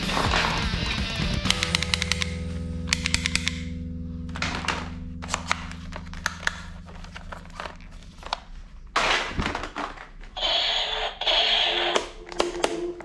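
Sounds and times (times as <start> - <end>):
plastic toy guns clacking: 1.5 - 3.7
plastic toys rattling: 9.0 - 10.4.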